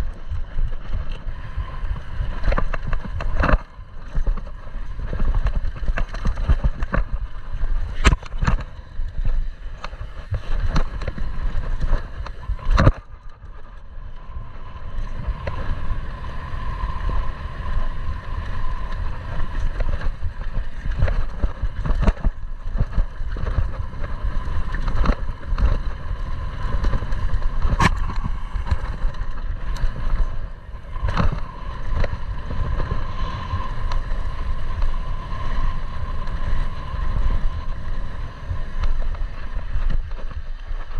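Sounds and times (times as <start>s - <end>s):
wind rumble on microphone: 0.0s - 40.9s
bike clattering over bumps: 1.9s - 13.8s.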